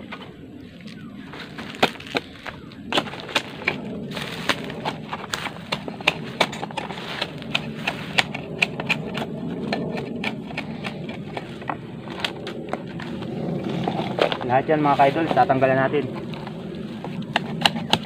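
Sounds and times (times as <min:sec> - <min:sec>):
blade chopping bamboo: 0:01.6 - 0:12.8, 0:17.3 - 0:18.0.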